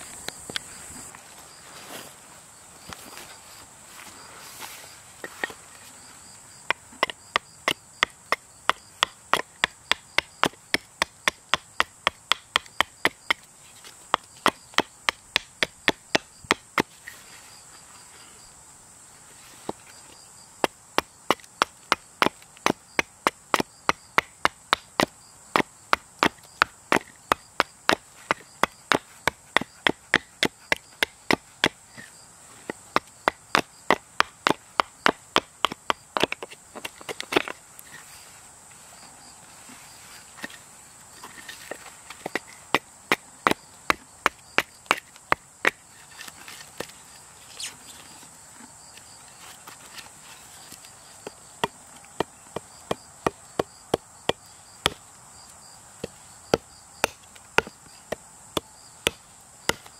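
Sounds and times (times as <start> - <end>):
hatchet chopping wood: 6.6 - 13.5, 14.1 - 16.9, 20.6 - 31.8, 32.7 - 37.6, 41.6 - 46.9, 51.2 - 55.0, 56.0 - 59.9.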